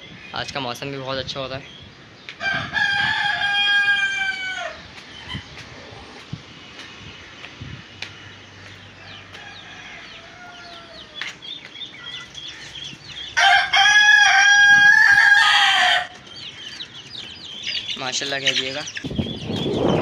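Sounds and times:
rooster crowing: 0:02.4 - 0:04.8, 0:09.0 - 0:11.2, 0:13.4 - 0:16.2.

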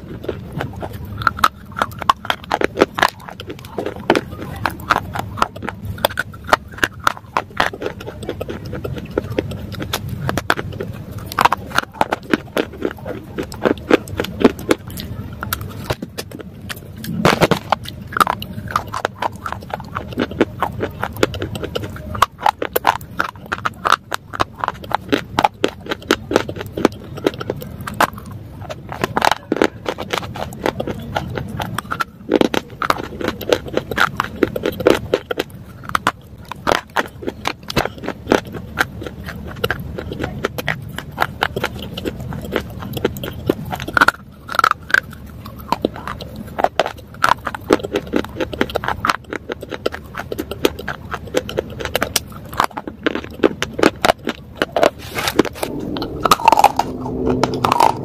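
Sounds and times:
dry clay crunching when chewed: 0:00.0 - 0:58.0.

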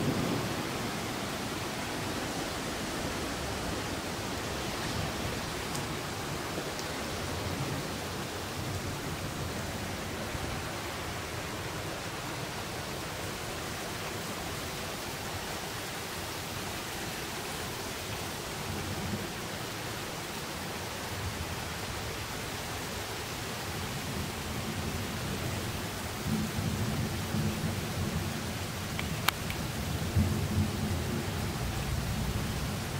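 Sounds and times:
distant thunder rumbling: 0:00.0 - 0:06.6
rain hissing: 0:00.0 - 0:32.9.

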